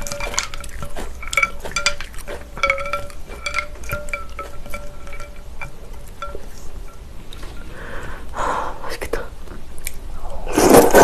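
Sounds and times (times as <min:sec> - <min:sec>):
ice cubes clinking against glass: 0:00.0 - 0:06.5.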